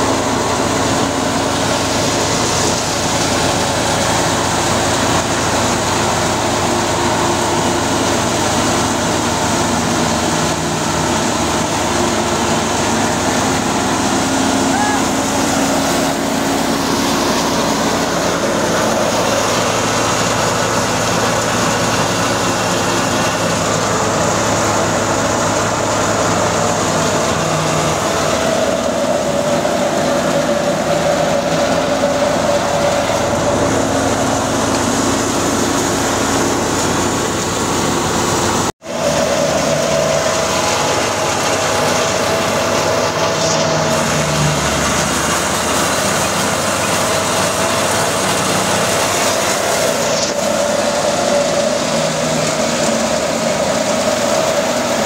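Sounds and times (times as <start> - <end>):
diesel tractor engine hum: 0.0 - 55.0
thresher machine drone: 0.0 - 55.0.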